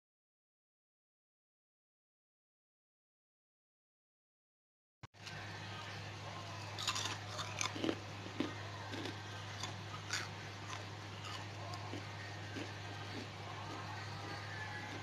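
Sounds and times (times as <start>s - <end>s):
steady low hum: 5.2s - 15.0s
crunching chips being chewed: 6.5s - 15.0s.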